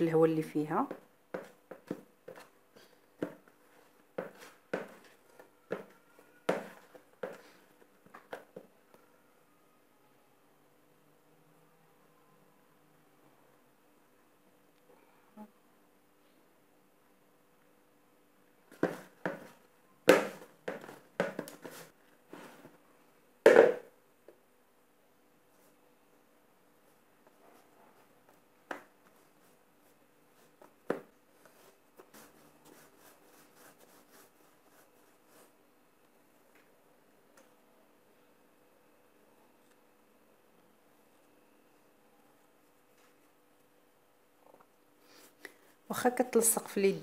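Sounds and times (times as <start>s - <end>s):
hands punching bread dough: 20.1s - 21.8s
hands kneading dough: 27.1s - 35.6s.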